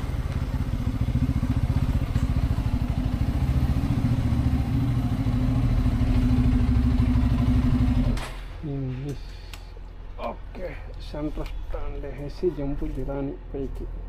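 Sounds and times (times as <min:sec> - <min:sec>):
motorcycle engine idling: 0:00.0 - 0:08.2.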